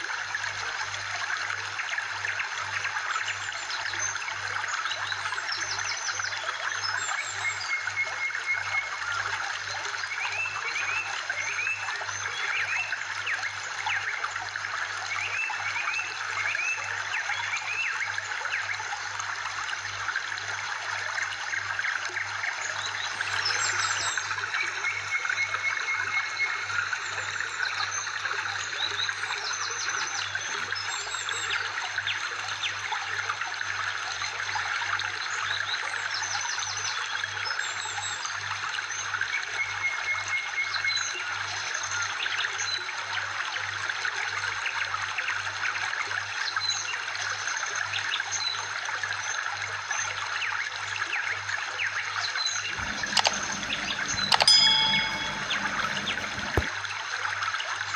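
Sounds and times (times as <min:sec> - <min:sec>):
bird chirps and trills: 0:22.8 - 0:26.6, 0:52.7 - 0:56.6.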